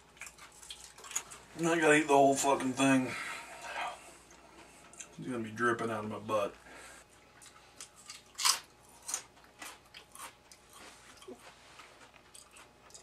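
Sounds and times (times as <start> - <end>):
person chewing potato chips: 0.0 - 1.5, 7.1 - 13.0.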